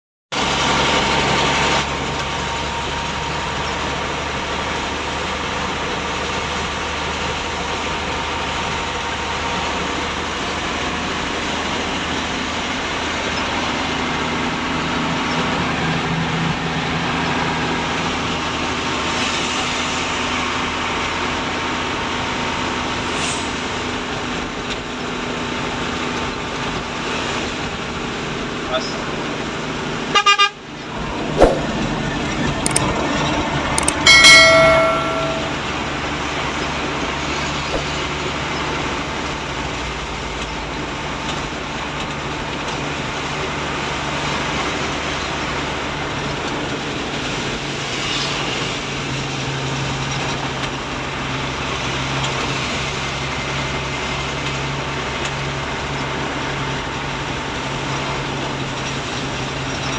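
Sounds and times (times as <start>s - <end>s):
rain and wet road noise: 0.4s - 34.1s, 35.6s - 59.9s
truck engine hum: 0.4s - 59.9s
sharp clicks: 32.6s - 32.9s, 33.8s - 34.0s.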